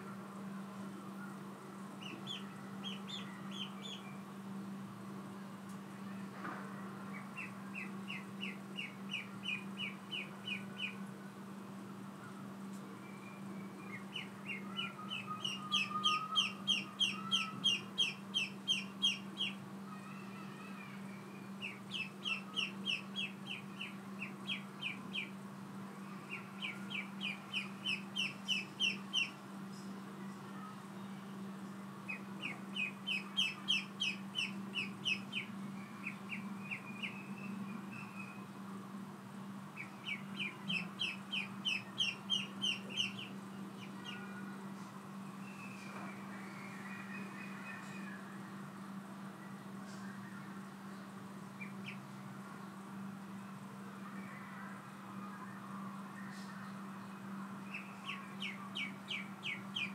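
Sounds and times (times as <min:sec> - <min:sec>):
ducklings peeping: 0:02.0 - 0:04.1, 0:07.1 - 0:11.0, 0:13.9 - 0:19.6, 0:21.6 - 0:25.3, 0:26.2 - 0:29.4, 0:32.0 - 0:37.3, 0:39.7 - 0:44.2, 0:57.7 - 0:59.9.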